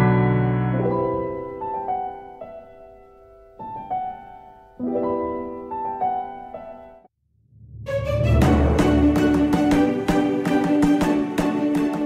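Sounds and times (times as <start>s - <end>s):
slow piano chords: 0.0s - 7.1s.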